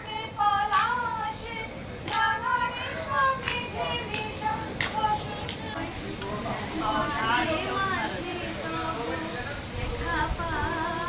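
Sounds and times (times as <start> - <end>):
small child singing: 0.0 - 5.8.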